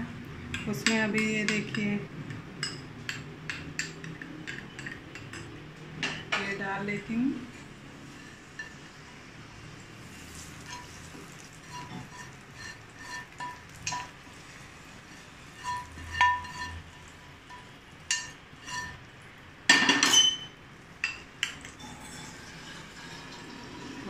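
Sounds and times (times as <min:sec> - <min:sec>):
steel spoon scraping a pan: 0:08.0 - 0:09.2, 0:10.0 - 0:19.1, 0:22.0 - 0:24.0.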